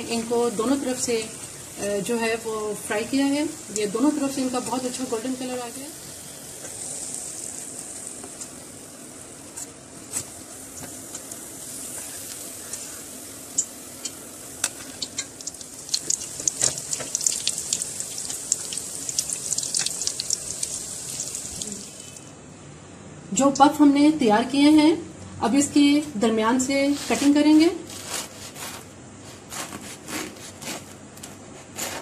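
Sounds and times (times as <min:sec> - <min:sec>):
dough deep-frying in hot oil: 0:00.0 - 0:22.3.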